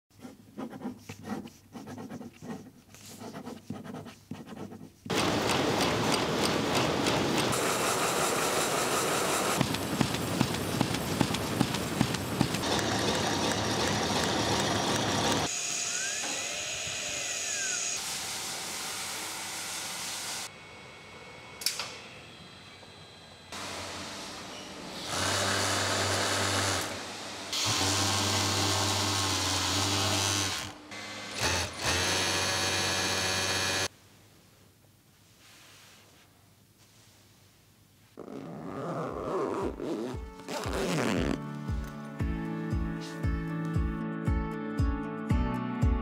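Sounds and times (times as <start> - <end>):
pen scratching on paper: 0.1 - 5.1.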